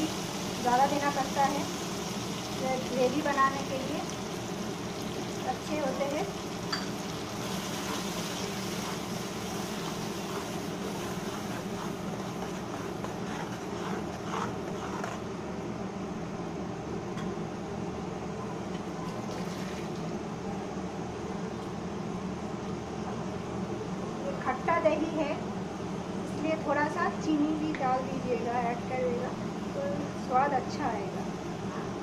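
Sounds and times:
steady mechanical hum: 0.0s - 32.0s
spatula stirring and scraping: 7.2s - 15.4s.

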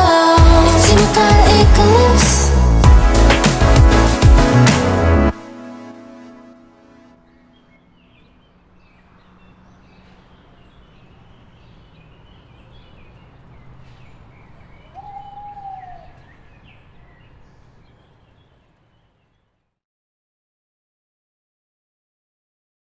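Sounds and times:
birds chirping: 6.0s - 19.7s.

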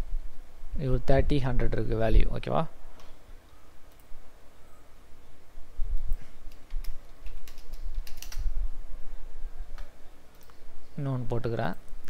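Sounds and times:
mouse and keyboard clicks: 6.0s - 8.5s.

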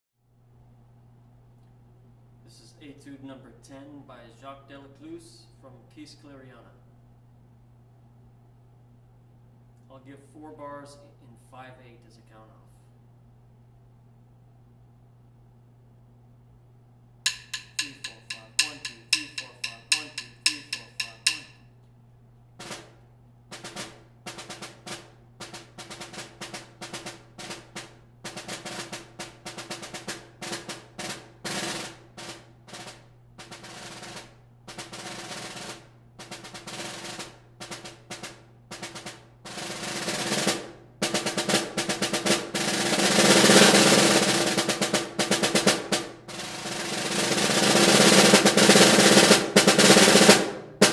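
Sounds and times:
snare drum playing: 17.3s - 21.6s, 23.5s - 50.9s.

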